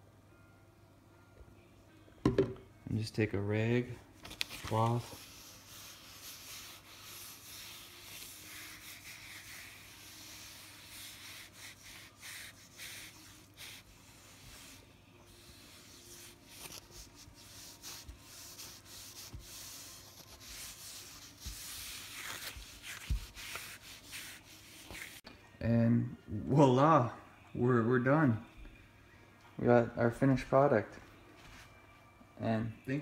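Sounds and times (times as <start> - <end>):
cloth rubbing on wooden board: 4.7 - 25.2.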